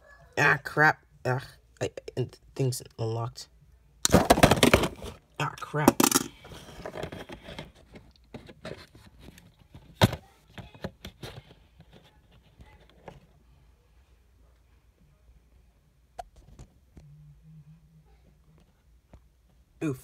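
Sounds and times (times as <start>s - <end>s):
plastic toy clicks and rattles: 5.9s - 6.3s.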